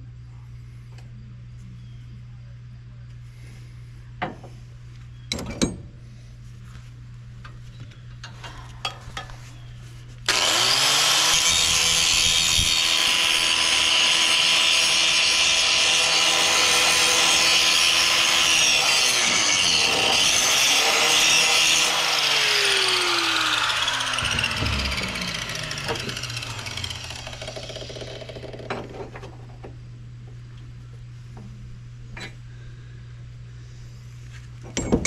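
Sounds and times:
angle grinder grinding steel: 10.3s - 28.8s.

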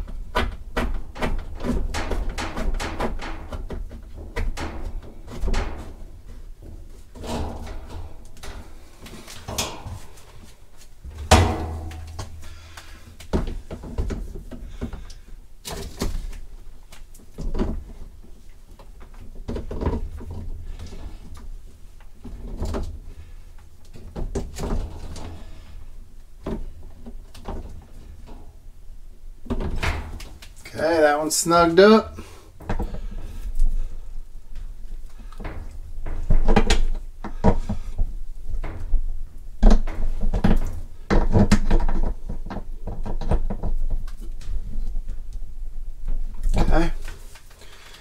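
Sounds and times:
hose fitting knocks and clunks: 0.0s - 16.3s, 29.4s - 30.4s, 35.2s - 39.0s, 39.6s - 44.9s.

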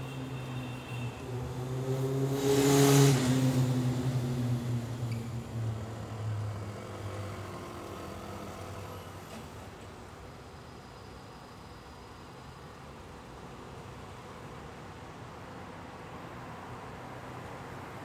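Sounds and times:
vehicle driving past: 1.3s - 9.2s.

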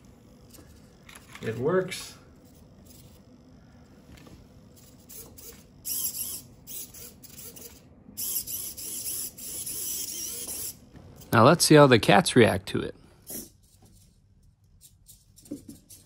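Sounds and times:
servo motors whirring: 0.2s - 3.5s, 4.2s - 11.3s.

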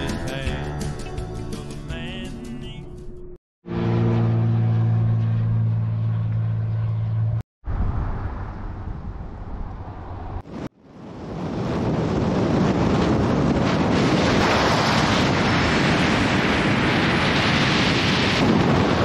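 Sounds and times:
vehicle engine droning: 2.9s - 10.4s
road and wind noise: 2.9s - 19.0s
wind buffeting microphone: 7.6s - 19.0s.

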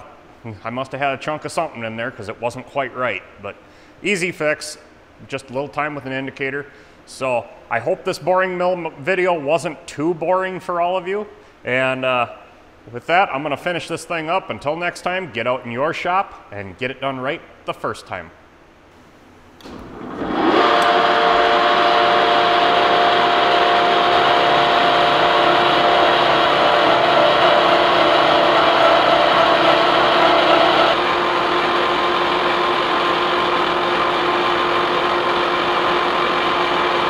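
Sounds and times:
motor spinning up with whine: 19.6s - 37.0s
machine gear whine: 19.9s - 37.0s.

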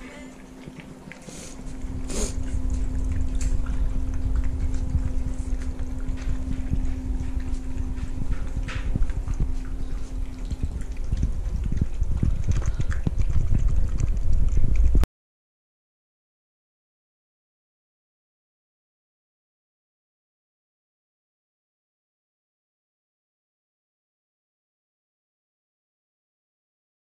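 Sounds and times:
steady low hum: 0.0s - 15.0s
dogs lapping and chewing: 0.0s - 15.1s
heavy low rumble: 1.6s - 15.0s.

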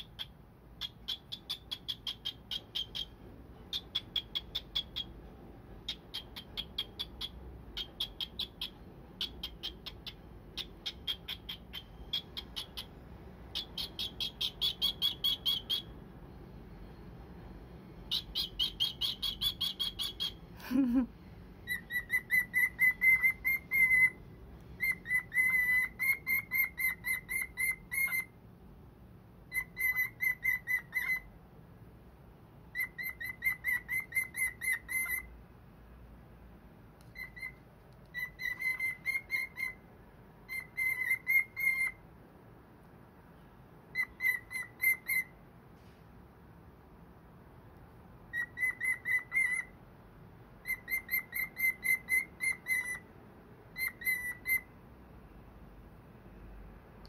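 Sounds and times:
cockatiel chirping: 0.0s - 16.0s, 18.1s - 20.9s, 21.6s - 28.4s, 29.4s - 31.3s, 32.7s - 35.3s, 37.0s - 42.0s, 43.9s - 45.4s, 48.3s - 49.8s, 50.6s - 53.1s, 53.7s - 54.7s.

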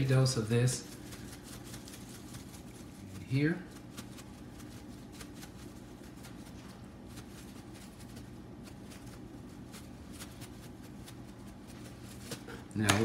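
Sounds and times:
seasoning shaker pattering: 0.0s - 13.0s.

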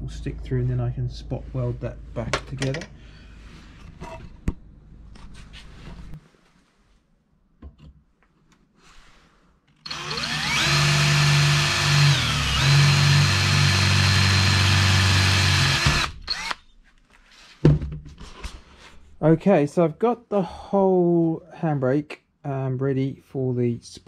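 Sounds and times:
cordless drill whining: 9.8s - 16.6s.

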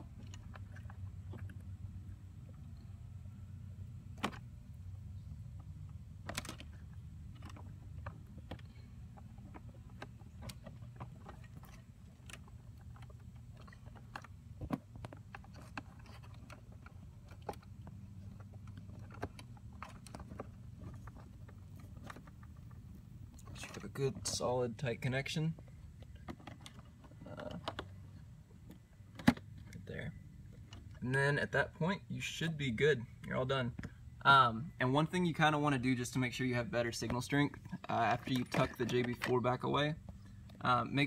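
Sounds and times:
low steady hum: 0.0s - 41.0s
small plastic clicks and rustles: 5.6s - 24.3s, 25.6s - 29.8s, 37.6s - 40.8s.

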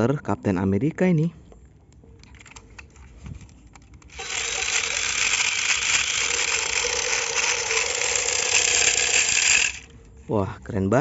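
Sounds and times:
toy gun motor and gears rattling: 2.2s - 10.0s.

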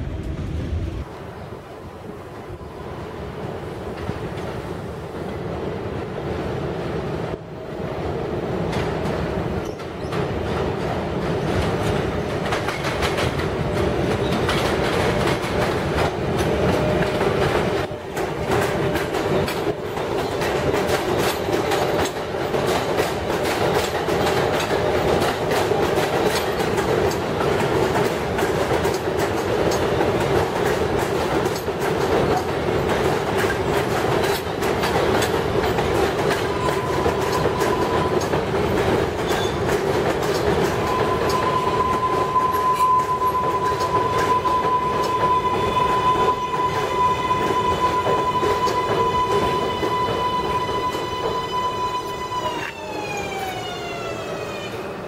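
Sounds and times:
train rumble: 0.0s - 55.0s
train wheels clattering over rail joints: 8.6s - 51.5s.

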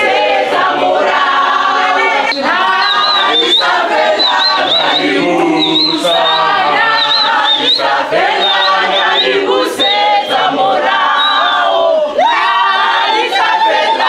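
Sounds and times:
group singing without instruments: 0.0s - 14.0s
high warbling call: 1.8s - 10.5s.

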